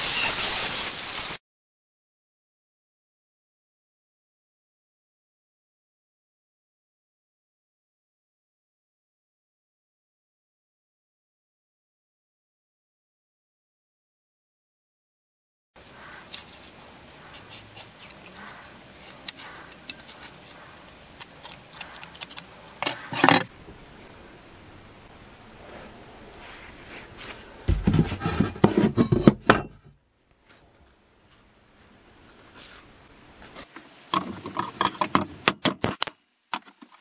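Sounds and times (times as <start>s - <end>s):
blade scrubbed with a pad: 15.9s - 23.5s
metal blade clinking and scraping: 16.3s - 20.6s, 21.2s - 23.5s, 34.1s - 35.2s.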